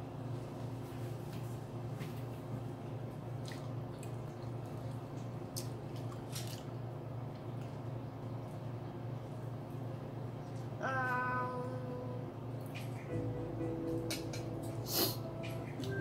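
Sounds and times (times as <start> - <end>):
steady low hum: 0.0 - 16.0
wet chewing and mouth smacks: 3.3 - 8.6, 12.6 - 13.1.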